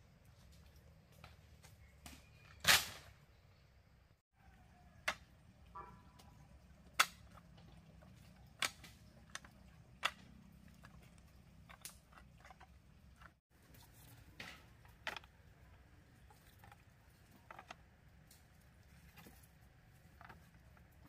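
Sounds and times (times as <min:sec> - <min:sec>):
bamboo pieces knocking together: 0:05.0 - 0:05.5, 0:06.2 - 0:21.0.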